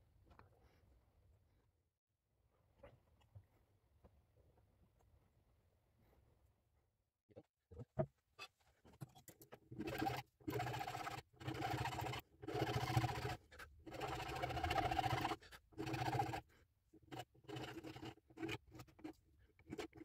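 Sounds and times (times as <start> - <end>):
file rasping on steel wire: 9.8 - 20.0.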